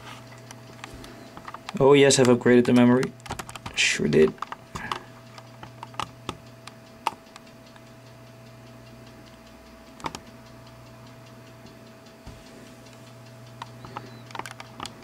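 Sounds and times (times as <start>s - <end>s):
faint steady hum: 0.0s - 15.0s
sharp laptop clicks: 1.4s - 7.4s.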